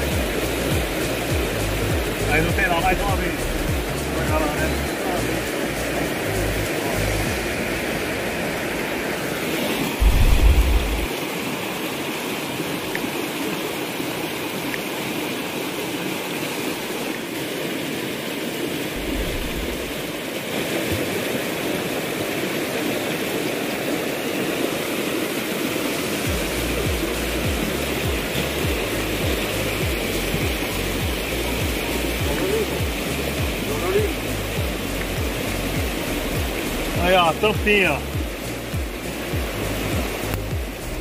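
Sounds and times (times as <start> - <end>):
waterfall rushing water: 0.0 - 41.0
low rumble: 10.0 - 11.1, 19.0 - 20.0.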